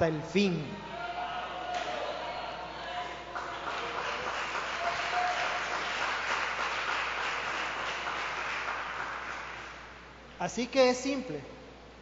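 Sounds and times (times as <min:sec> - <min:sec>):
congregation applauding: 0:02.9 - 0:10.1.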